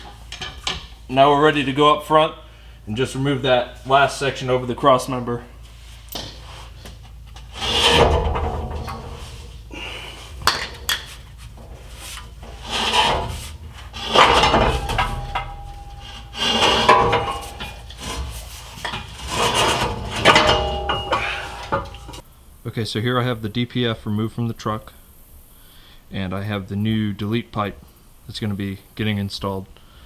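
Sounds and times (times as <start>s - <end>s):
metal grinding and scraping: 5.7s - 22.2s
sharp metal knocks: 7.4s - 9.6s, 10.4s - 22.2s.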